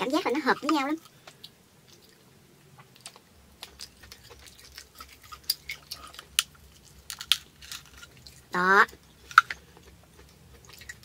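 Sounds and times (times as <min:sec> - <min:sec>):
quiet chewing: 0:00.2 - 0:11.0
lobster shell clicking: 0:07.1 - 0:08.1.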